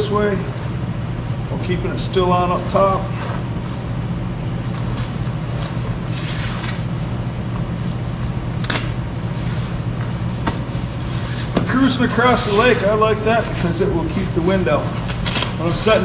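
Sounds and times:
low machine hum: 0.0s - 16.0s
jacket fabric rustling: 2.6s - 16.0s.

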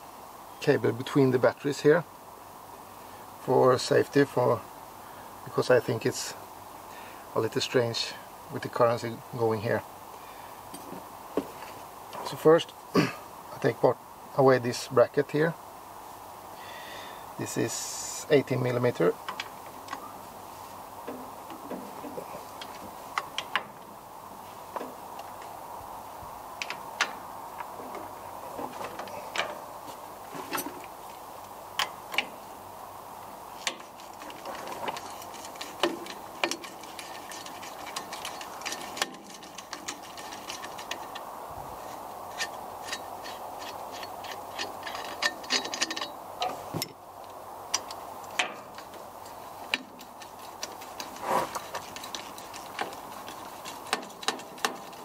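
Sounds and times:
metal clinks and knocks: 30.4s - 30.9s, 33.6s - 47.0s, 47.7s - 55.0s.

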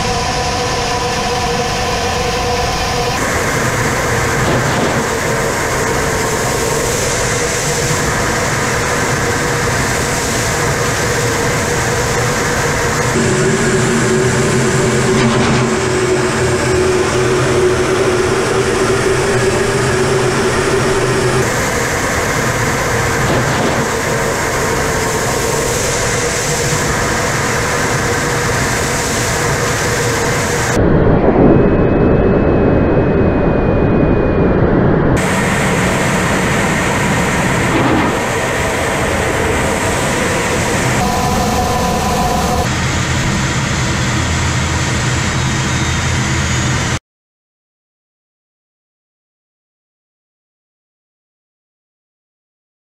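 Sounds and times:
jet engine and airflow noise: 0.0s - 47.0s
low steady whine: 0.0s - 47.0s
rushing wind noise: 0.0s - 47.0s
faint high whistle: 40.2s - 42.7s.

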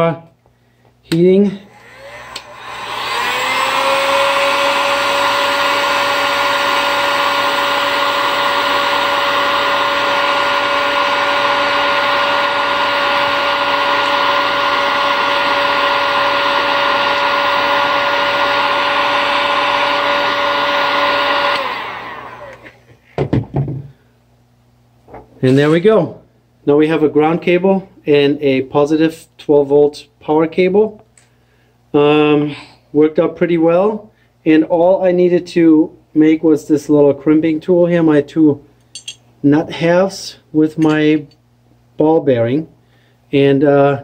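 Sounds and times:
heat gun fan whining: 0.8s - 24.0s
heat gun switch click: 2.3s - 2.5s.

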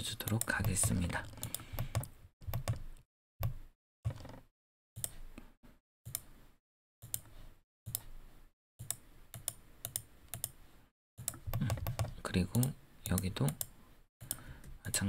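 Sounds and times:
mouse and keyboard clicking: 11.2s - 15.0s.

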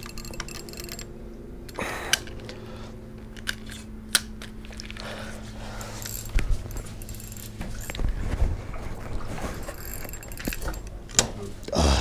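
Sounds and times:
faint steady hum: 0.0s - 12.0s
rustle of handling: 2.2s - 11.6s.

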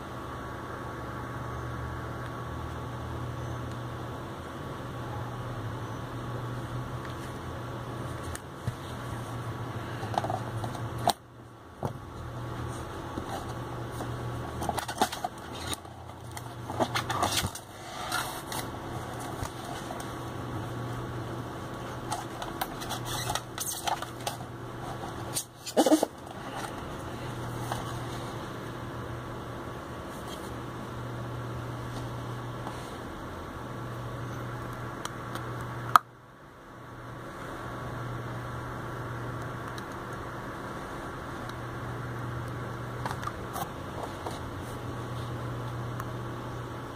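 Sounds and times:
steady low hum: 0.0s - 46.9s
plastic and metal casing handled: 13.2s - 20.1s.

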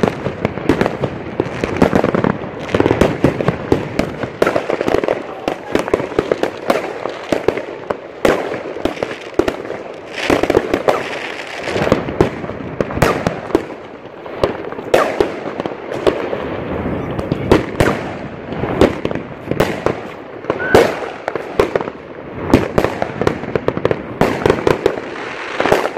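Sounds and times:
fireworks bangs: 0.0s - 25.9s
fireworks crackling: 0.0s - 25.9s.

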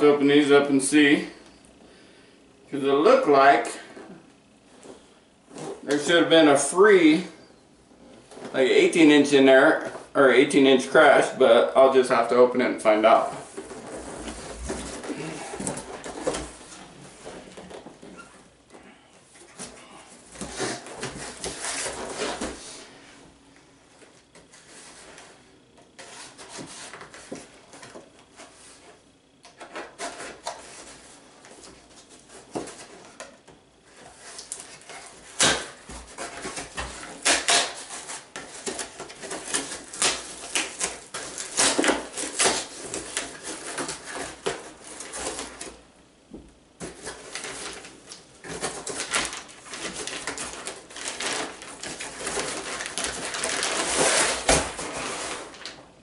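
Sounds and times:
packing scraping and rustling: 13.1s - 18.4s, 19.4s - 23.0s, 46.8s - 55.8s
knife cutting tape and cardboard: 34.3s - 45.7s.

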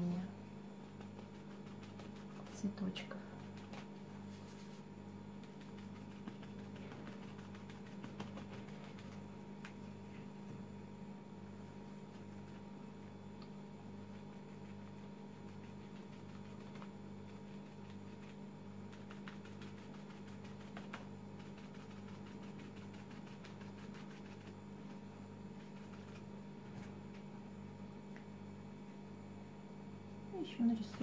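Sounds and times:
low steady hum: 0.0s - 31.0s
paper napkin dabbing on paper: 0.8s - 9.9s, 11.8s - 12.8s, 14.0s - 27.3s.

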